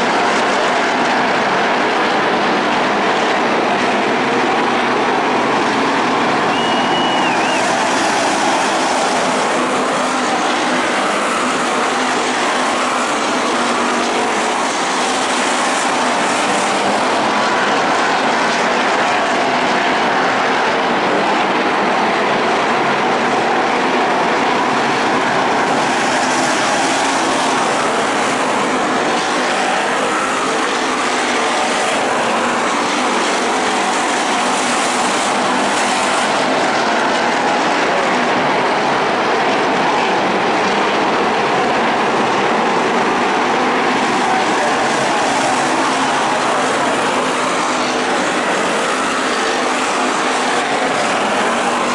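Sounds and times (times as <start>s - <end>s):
stock car engines racing: 0.0s - 51.9s.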